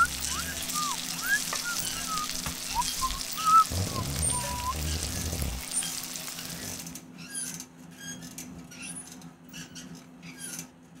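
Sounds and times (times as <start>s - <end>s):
low steady hum: 0.0s - 6.8s.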